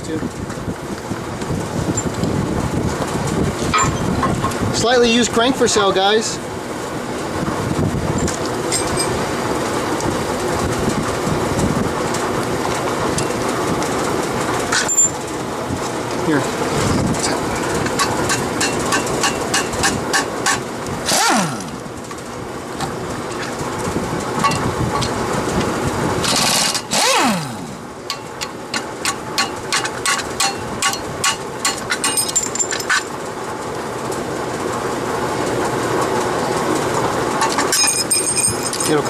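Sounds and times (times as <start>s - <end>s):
impact wrench burst: 18.0s - 21.9s, 26.2s - 32.7s.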